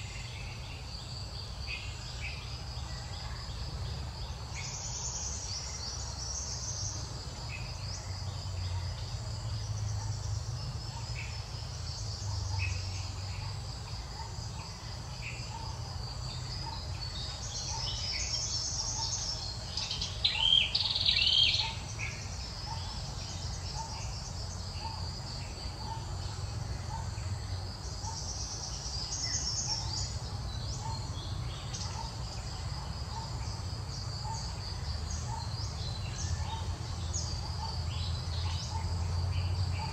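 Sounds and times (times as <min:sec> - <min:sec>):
insects chirping: 0:00.0 - 0:39.9.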